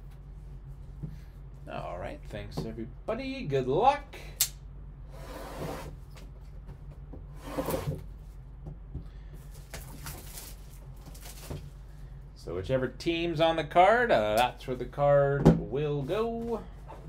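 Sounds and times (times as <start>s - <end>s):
steady low hum: 0.0s - 17.0s
rustling of packaging: 9.5s - 11.8s.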